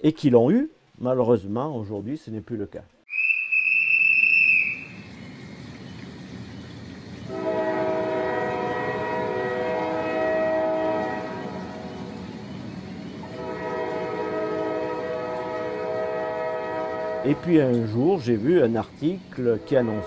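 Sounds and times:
short high whistle tone: 3.1 - 5.0
diesel railcar running: 3.7 - 20.0
train horn: 7.3 - 12.3, 13.2 - 18.3, 19.3 - 20.0.

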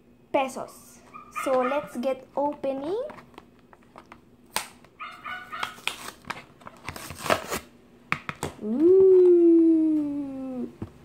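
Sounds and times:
plastic packaging crinkling and tearing: 5.5 - 7.7.

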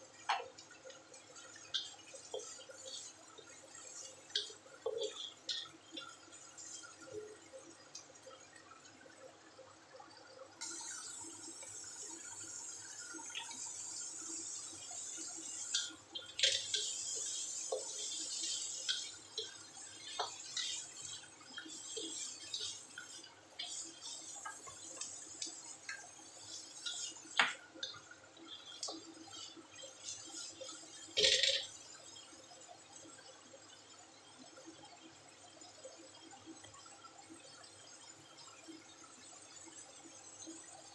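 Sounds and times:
spatula scraping and tapping pan: 3.8 - 6.2, 15.6 - 28.0
vegetables sizzling in oil: 10.6 - 31.7.

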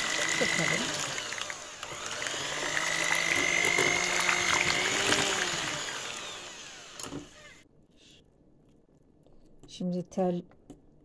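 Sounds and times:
electric hand mixer whine: 0.0 - 7.6.

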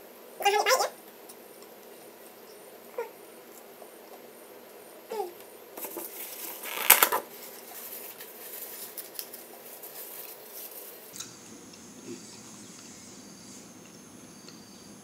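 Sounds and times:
tissue paper rustling: 5.8 - 11.1.

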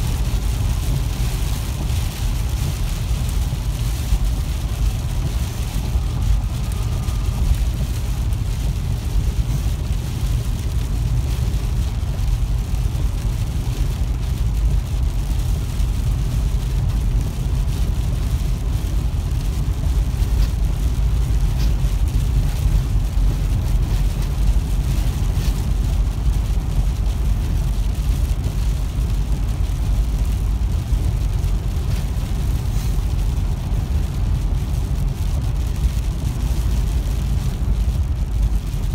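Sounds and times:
rain on car: 0.0 - 38.9
road and wind rumble: 0.0 - 38.9
wet tyres hissing: 15.8 - 35.0.

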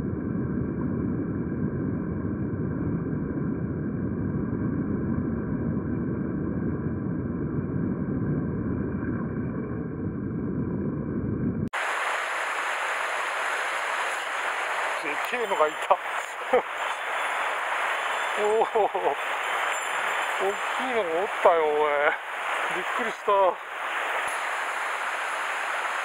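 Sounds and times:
stream rushing over stones: 11.8 - 26.0.

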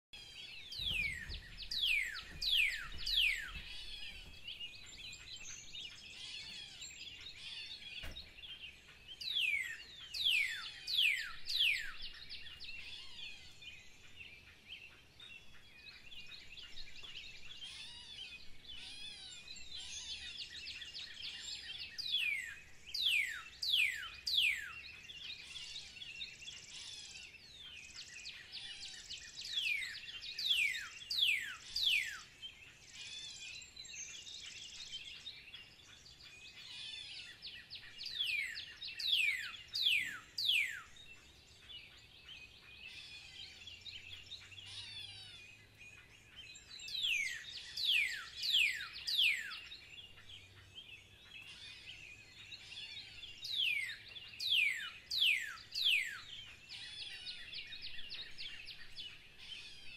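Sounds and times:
high bird twittering: 0.2 - 13.6, 36.2 - 41.1, 42.5 - 59.9.

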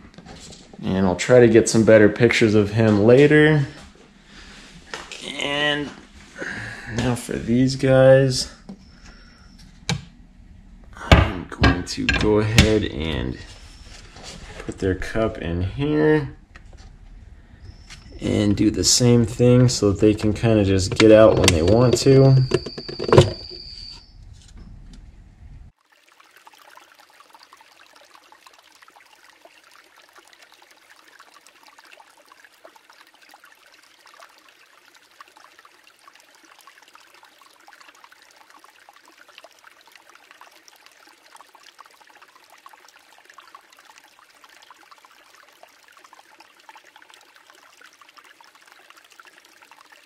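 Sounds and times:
faint trickling water: 0.0 - 23.0, 25.7 - 50.0
plastic cup being set down: 20.9 - 23.5.

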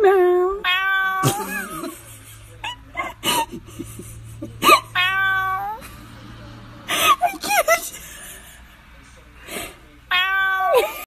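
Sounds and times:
cat meowing: 0.0 - 1.4, 4.8 - 5.8, 10.1 - 11.0.

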